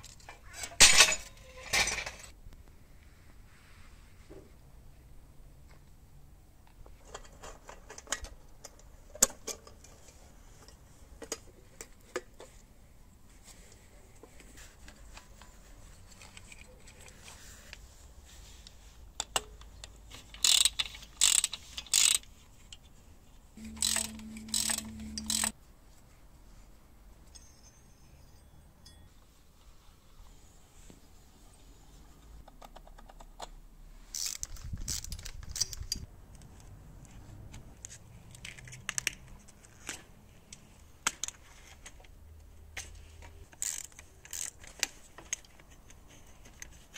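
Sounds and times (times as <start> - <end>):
low hum: 23.6 - 25.5.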